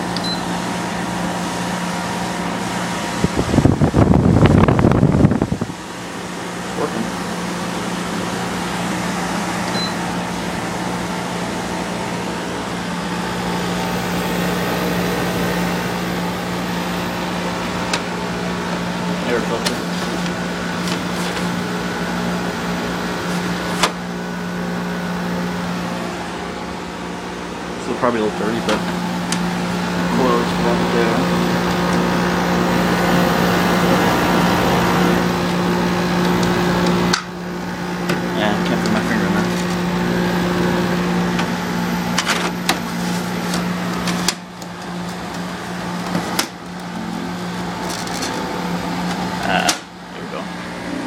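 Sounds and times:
dehumidifier humming: 0.0 - 51.0
fan whoosh: 0.6 - 21.8.

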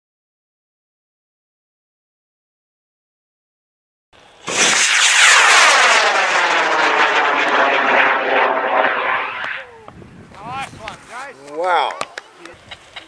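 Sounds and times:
rocket whoosh sweeping downward: 4.2 - 9.9
rocket motor roaring: 4.3 - 9.7.

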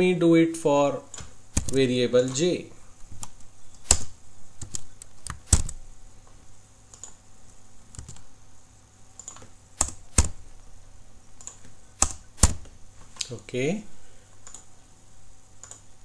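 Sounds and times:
computer keyboard keystrokes: 1.1 - 2.4, 3.2 - 5.8, 6.9 - 7.2, 7.9 - 8.3, 9.2 - 10.4, 11.4 - 12.7, 14.4 - 14.7, 15.6 - 15.8.

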